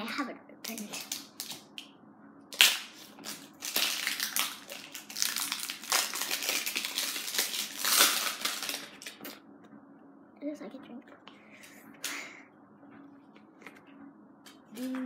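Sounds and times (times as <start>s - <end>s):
plastic packaging ripping: 0.7s - 1.7s, 2.5s - 9.4s
packaging crinkling: 2.6s - 9.4s.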